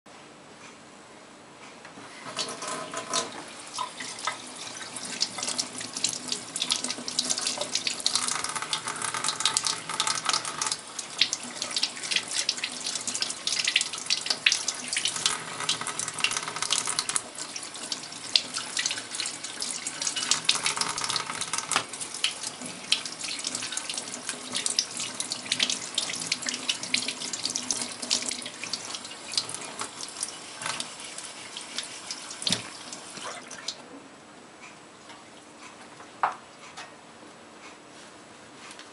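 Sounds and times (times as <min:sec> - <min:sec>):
tap running into metal sink: 0:32.4 - 0:32.8.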